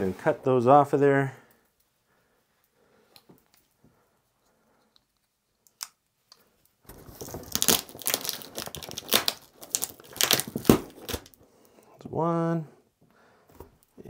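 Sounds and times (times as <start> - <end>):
packaging crinkling: 6.9 - 11.4.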